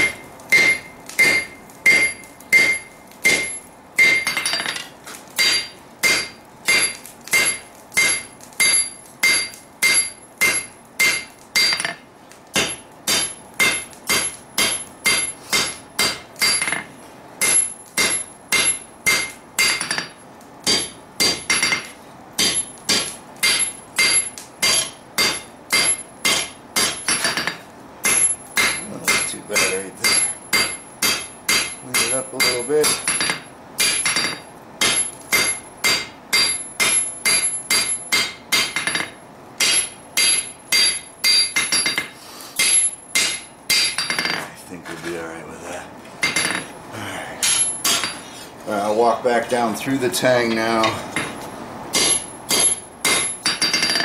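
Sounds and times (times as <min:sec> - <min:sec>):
hammer striking blade on anvil: 0:00.0 - 0:12.0, 0:12.6 - 0:44.4, 0:47.4 - 0:48.2, 0:50.5 - 0:54.0.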